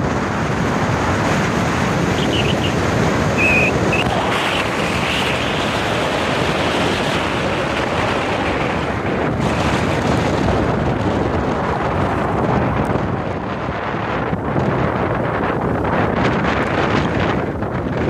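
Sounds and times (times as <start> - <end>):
road noise: 0.0 - 18.0
wind buffeting microphone: 0.0 - 18.0
short high chirps: 2.2 - 2.8, 3.4 - 4.1.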